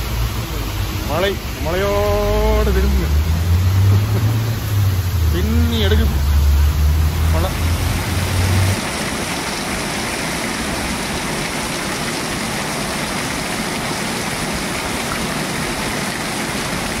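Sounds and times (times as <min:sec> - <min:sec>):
heavy rain on pavement: 0:00.0 - 0:17.0.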